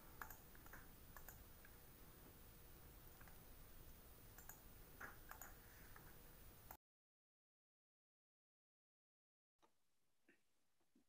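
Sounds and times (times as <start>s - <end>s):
soft clicks: 0.2s - 1.8s, 3.1s - 3.4s, 4.3s - 6.8s.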